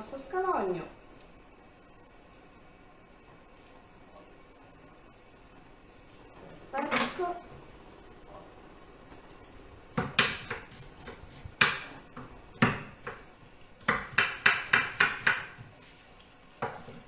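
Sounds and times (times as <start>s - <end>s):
knife chopping on wooden board: 9.9s - 15.6s.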